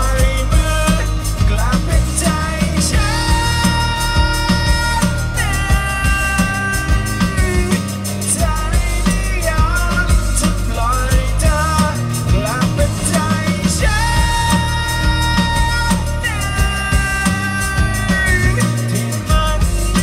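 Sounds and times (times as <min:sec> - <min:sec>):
bass: 0:00.0 - 0:20.0
guitar: 0:00.0 - 0:20.0
singer holding long notes: 0:00.0 - 0:20.0
steady drum beat: 0:00.0 - 0:20.0.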